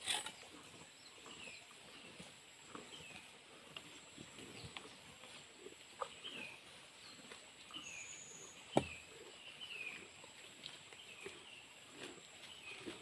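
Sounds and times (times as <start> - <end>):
cows chewing fodder: 0.0 - 13.0
bird chirping: 6.0 - 11.8.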